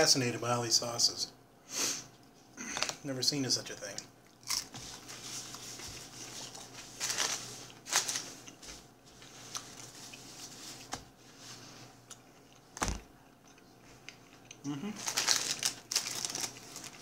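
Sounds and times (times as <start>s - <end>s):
hands handling food and packets: 4.4s - 11.2s, 15.0s - 17.0s
paper rustles: 4.7s - 11.7s, 15.0s - 17.0s.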